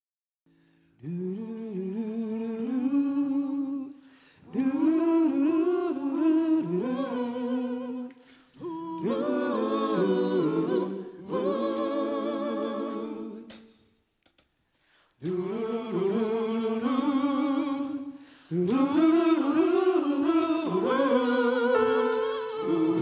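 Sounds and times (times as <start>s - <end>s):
vocal group singing a cappella: 1.0s - 14.0s, 14.9s - 23.0s.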